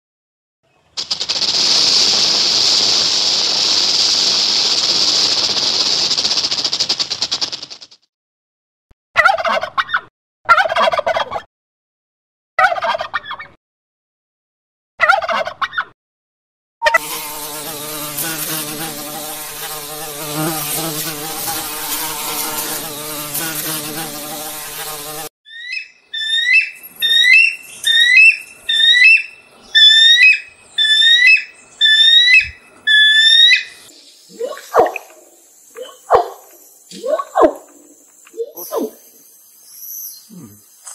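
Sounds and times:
honeybee buzzing: 17.0s - 25.3s
eagle high chirping call: 25.5s - 34.9s.

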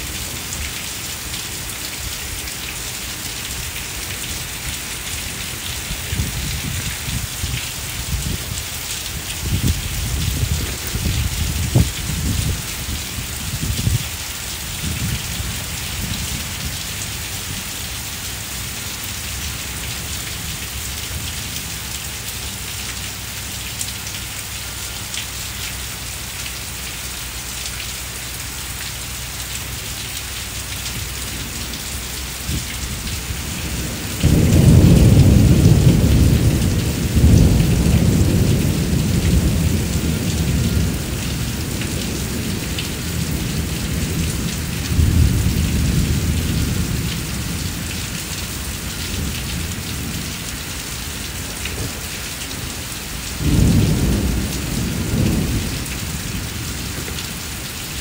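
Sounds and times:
heavy rain on bricks: 0.0s - 58.0s
loud low thunder rumble: 9.3s - 14.1s, 32.4s - 47.9s, 53.4s - 58.0s.

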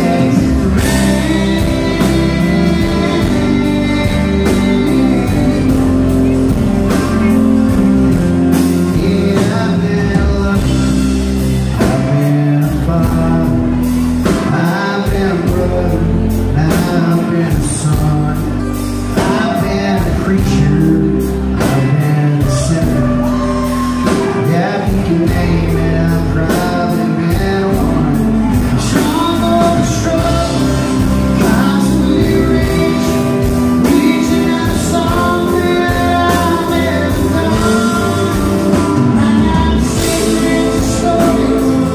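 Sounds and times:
country rock band playing: 0.0s - 41.9s
man singing: 0.0s - 41.9s.

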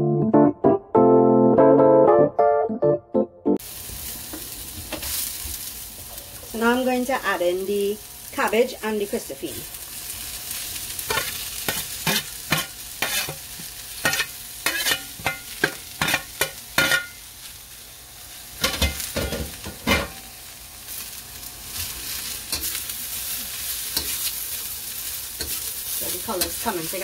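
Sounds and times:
oil sizzling in a wok: 3.6s - 27.0s
metal spoon scraping a metal plate: 11.1s - 13.4s, 14.0s - 15.4s.

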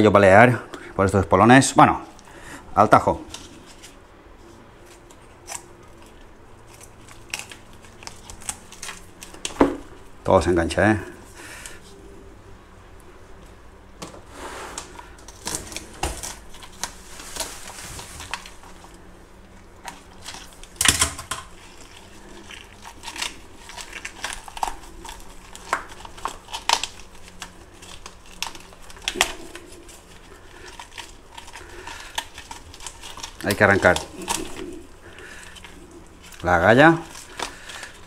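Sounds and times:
hands handling fish rustling: 14.8s - 38.0s.

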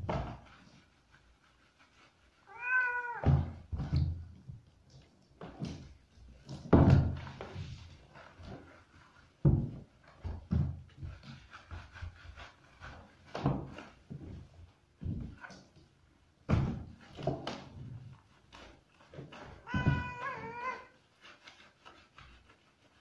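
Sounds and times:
thumps and rubbing in bathtub: 0.0s - 23.0s
cat meowing: 2.5s - 3.4s, 19.6s - 21.0s.

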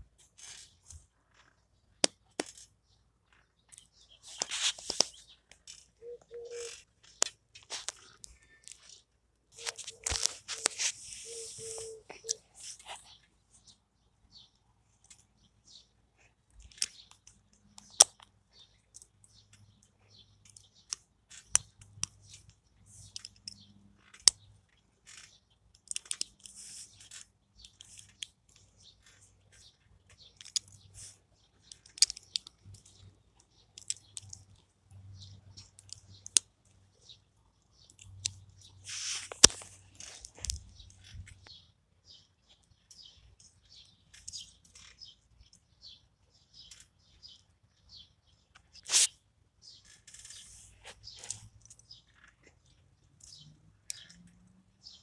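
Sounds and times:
rustling scrape: 4.2s - 5.2s, 9.6s - 13.0s, 38.8s - 40.4s
plastic parts clicking and snapping: 20.4s - 29.2s, 30.1s - 30.8s, 31.6s - 34.6s.

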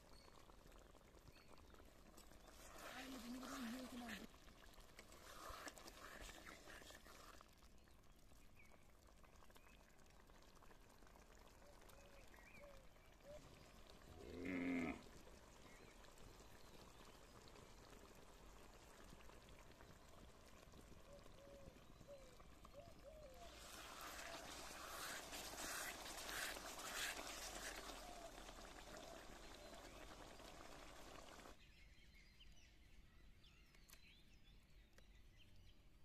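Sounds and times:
farm animal bleating: 14.2s - 15.0s.

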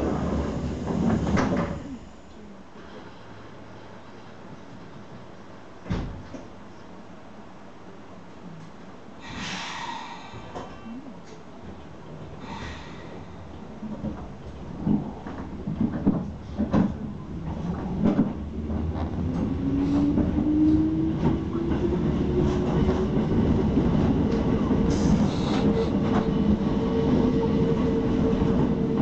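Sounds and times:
train knocks and clunks: 0.0s - 2.0s, 5.8s - 6.6s, 10.2s - 29.0s
train wheels on rails: 0.0s - 2.0s, 9.2s - 29.0s.

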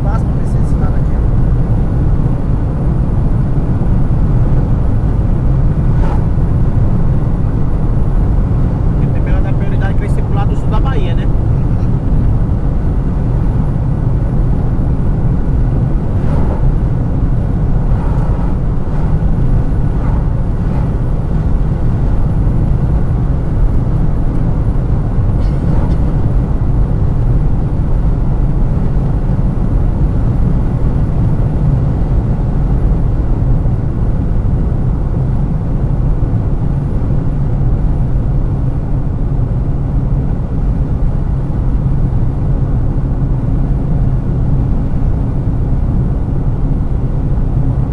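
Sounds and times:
car road noise rumble: 0.0s - 47.9s.

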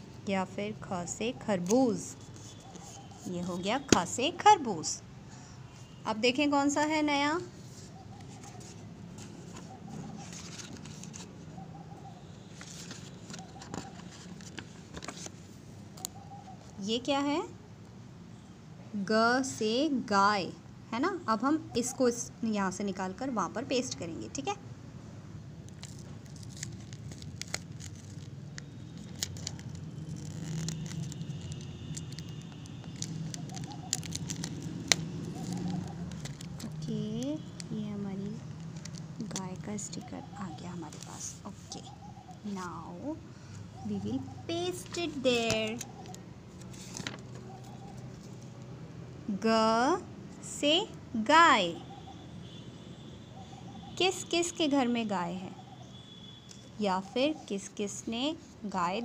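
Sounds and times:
faint bird calls: 1.2s - 3.6s, 7.7s - 10.7s, 11.4s - 14.4s, 16.0s - 16.8s, 30.3s - 36.4s, 46.9s - 48.3s
paper pages rustling: 1.6s - 4.2s, 7.6s - 11.6s, 12.4s - 16.8s, 25.7s - 36.9s, 38.3s - 41.8s, 44.6s - 48.6s.

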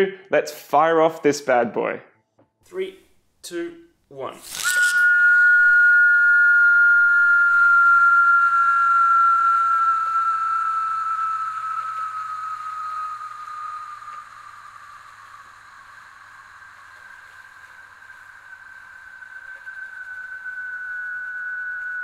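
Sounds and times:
quiet steady second tone: 2.7s - 22.0s
spinning top whistling: 4.3s - 22.0s.

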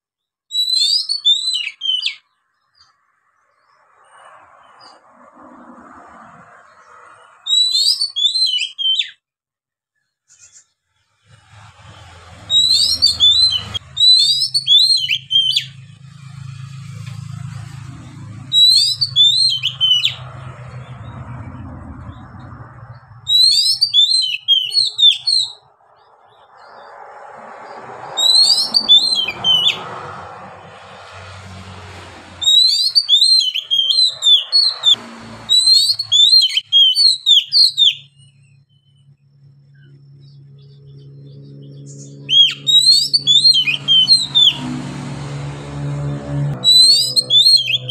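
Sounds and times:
bird singing whistled notes: 0.5s - 2.9s, 7.4s - 9.2s, 12.4s - 15.8s, 18.4s - 20.3s, 23.2s - 25.7s, 28.2s - 29.8s, 32.4s - 39.1s, 39.7s - 44.6s, 46.6s - 47.9s.

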